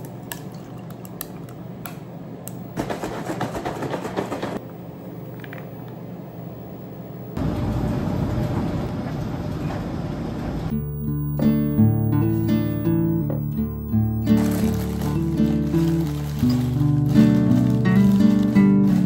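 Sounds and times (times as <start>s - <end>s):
ice crackling as liquid poured: 14.2s - 19.0s.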